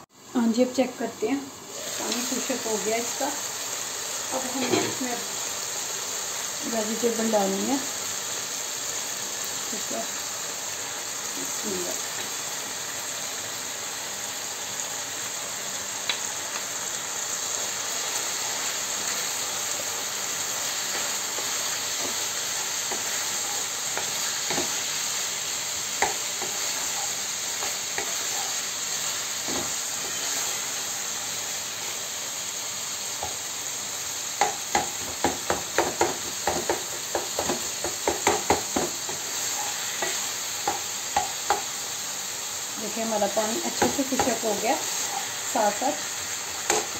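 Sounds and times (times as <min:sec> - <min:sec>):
food sizzling in frying pan: 0:00.0 - 0:46.9
spatula stirring: 0:25.9 - 0:28.7
spatula knocking: 0:34.4 - 0:39.2.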